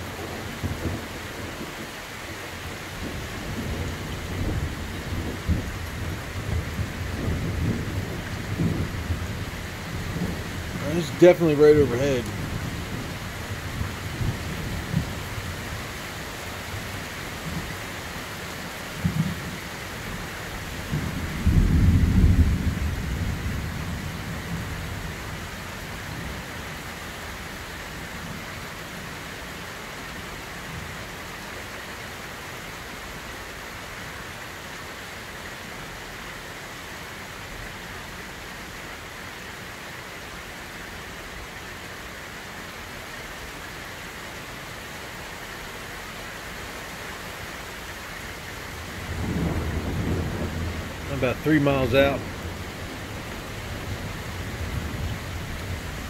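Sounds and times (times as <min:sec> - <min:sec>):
heavy rain falling: 0:00.0 - 0:56.0
deep rumbling thunderclap: 0:03.0 - 0:15.2, 0:20.8 - 0:24.7, 0:49.0 - 0:56.0
sharp thunder cracks: 0:49.1 - 0:52.7.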